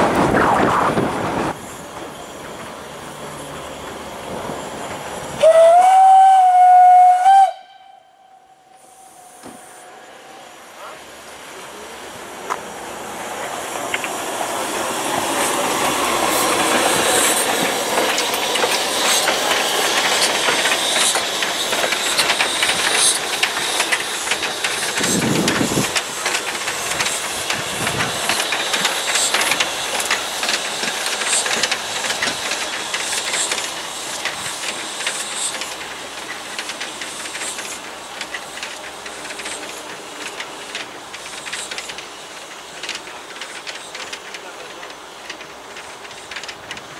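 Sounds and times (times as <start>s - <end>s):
steam locomotive hissing: 0.0s - 46.9s
wheels clicking over rails: 13.4s - 46.9s.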